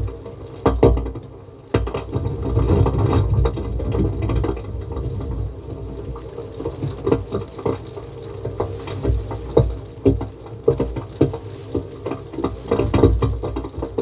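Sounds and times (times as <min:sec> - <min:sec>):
low mechanical rumble: 0:07.8 - 0:13.0.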